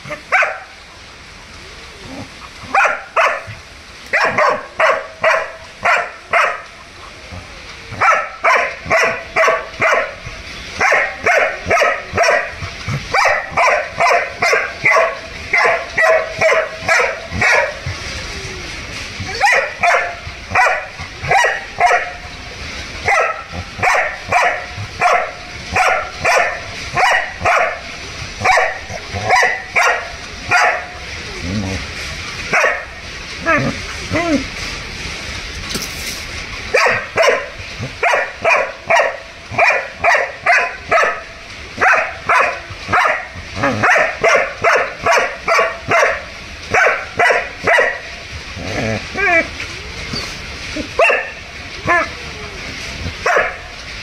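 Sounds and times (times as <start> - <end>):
dog barking: 0.3 - 0.7, 2.7 - 3.5, 4.1 - 6.6, 8.0 - 10.2, 10.8 - 17.8, 19.3 - 22.2, 23.0 - 27.8, 28.4 - 30.9, 32.5 - 32.9, 36.7 - 41.2, 41.8 - 48.0, 51.0 - 52.0, 53.2 - 53.6.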